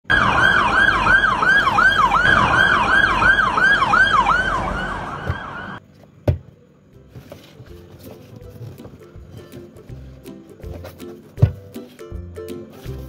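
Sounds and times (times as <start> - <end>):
electronic yelp siren: 0.1 - 5.8.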